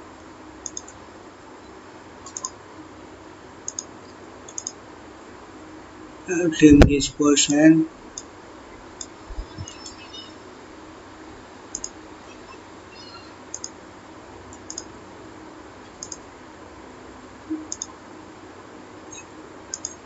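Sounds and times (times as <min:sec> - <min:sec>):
faint steady hiss: 0:00.0 - 0:20.0
computer mouse clicking: 0:00.6 - 0:01.0, 0:02.2 - 0:02.6, 0:03.7 - 0:03.9, 0:04.5 - 0:04.8, 0:11.7 - 0:12.0, 0:13.5 - 0:13.8, 0:14.5 - 0:14.9, 0:16.0 - 0:16.2, 0:17.7 - 0:17.9, 0:19.7 - 0:20.0.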